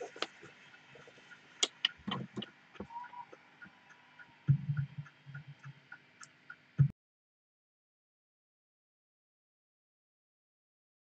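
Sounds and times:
faint regular ticking: 0.0s - 6.9s.

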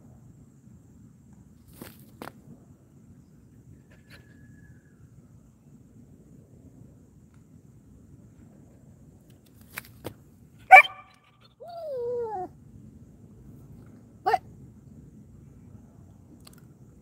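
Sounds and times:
dog barking: 10.7s - 11.2s
dog whining: 10.7s - 12.5s.

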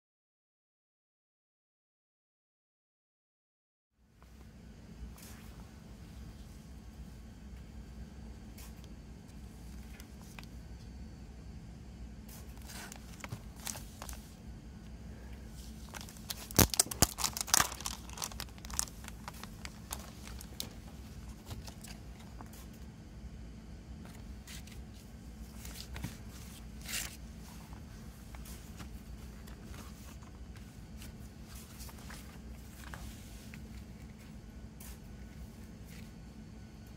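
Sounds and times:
plastic wrap tearing and crinkling: 12.6s - 14.2s, 15.8s - 20.8s.

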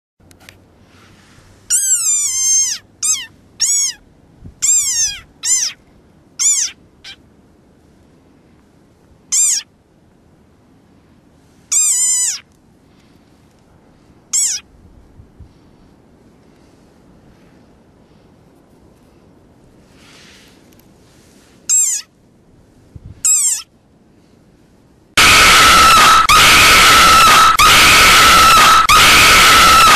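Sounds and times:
frog screaming: 1.7s - 4.0s, 4.6s - 5.8s, 6.4s - 7.2s, 9.3s - 9.7s, 11.7s - 12.4s, 14.3s - 14.6s, 21.7s - 22.1s, 23.3s - 23.7s, 25.2s - 29.9s.

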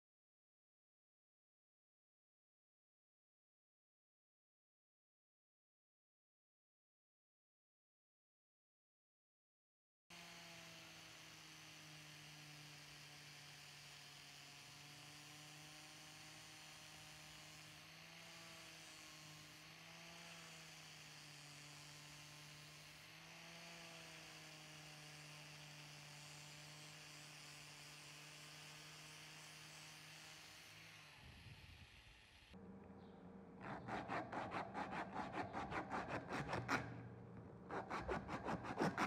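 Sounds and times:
angle grinder sanding wood: 10.1s - 32.0s, 33.6s - 39.0s.

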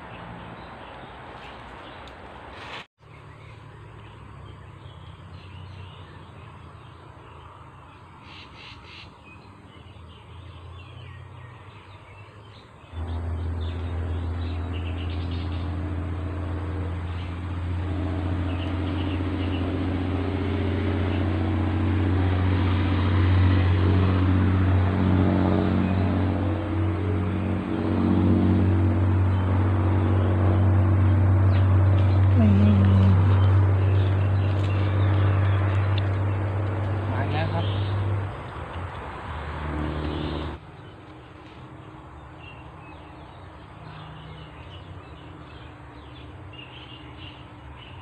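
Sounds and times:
birds chirping: 3.0s - 48.0s
low engine drone: 12.8s - 40.6s.

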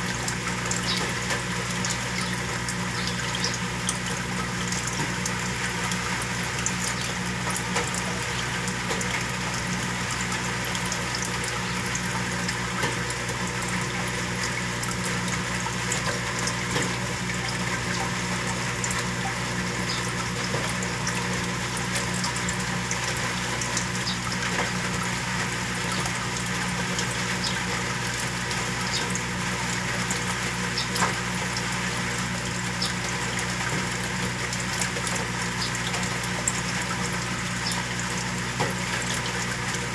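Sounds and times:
aquarium pump humming: 0.0s - 39.9s
water flowing and bubbling: 0.0s - 39.9s
small ticks: 0.7s - 2.4s, 19.9s - 21.2s, 30.7s - 31.2s.

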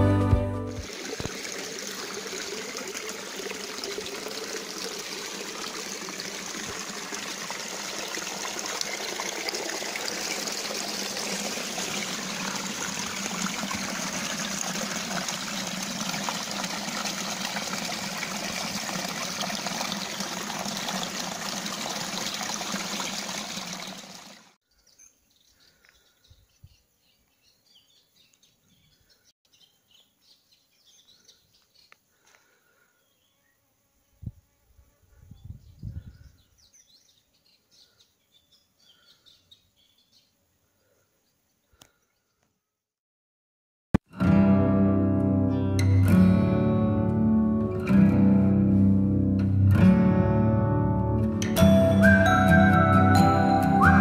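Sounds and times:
stream trickling over rocks: 0.7s - 24.6s.

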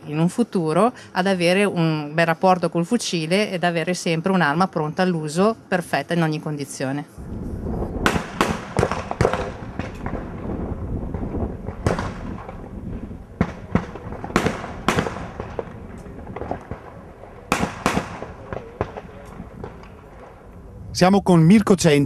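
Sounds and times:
outdoor background noise: 0.0s - 22.0s
shotguns firing: 8.0s - 10.5s, 11.1s - 20.5s.

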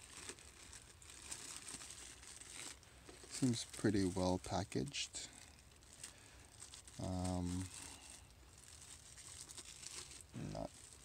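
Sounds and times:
plastic wrap crinkling: 0.0s - 11.0s
person humming: 10.4s - 10.7s.

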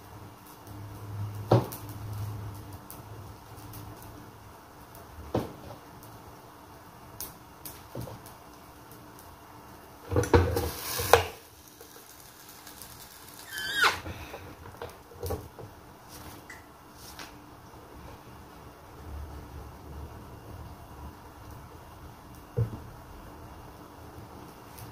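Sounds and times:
short falling squeal: 13.4s - 14.1s.

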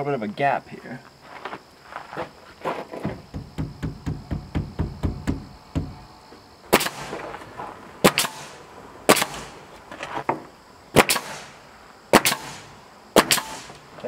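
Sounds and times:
light knocks: 2.9s - 6.1s
nail gun shots: 6.7s - 7.3s, 8.0s - 9.6s, 10.9s - 13.9s.

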